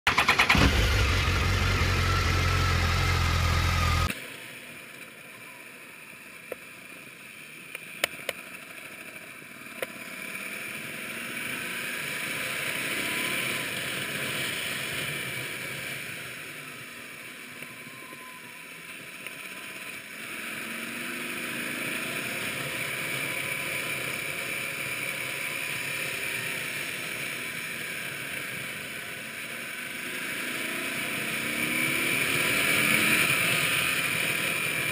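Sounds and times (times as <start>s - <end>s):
motorcycle engine: 0.1s - 4.1s.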